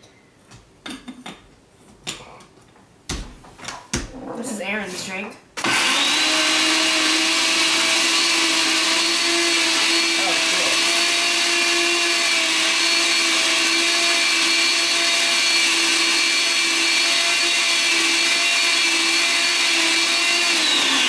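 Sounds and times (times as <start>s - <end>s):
blender motor whine: 5.6s - 21.0s.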